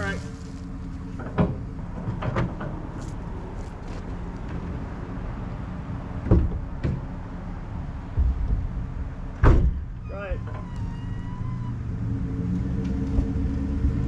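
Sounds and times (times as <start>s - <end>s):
knocks and thuds: 6.2s - 7.1s, 8.1s - 9.9s
car door shutting: 9.4s - 9.9s.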